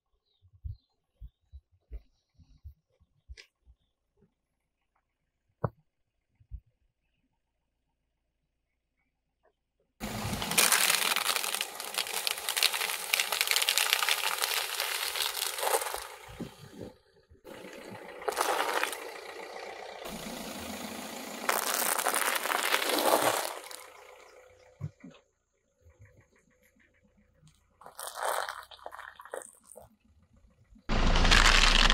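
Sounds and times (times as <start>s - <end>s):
crackling under a car tyre: 10.0s - 25.2s, 25.8s - 31.9s.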